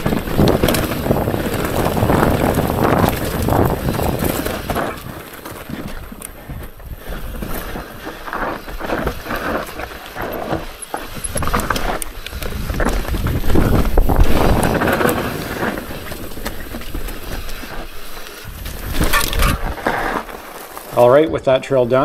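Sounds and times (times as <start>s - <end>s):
wind on microphone: 0.0s - 7.8s, 11.2s - 17.8s, 18.5s - 20.0s
bike clattering over bumps: 0.0s - 22.0s
tyres crunching over dirt and rock: 0.0s - 22.0s.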